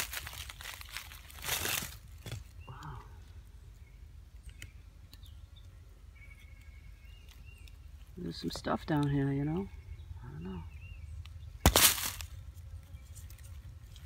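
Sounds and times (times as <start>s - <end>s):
dry leaves crunching and rustling: 0.0s - 2.6s, 11.6s - 14.0s.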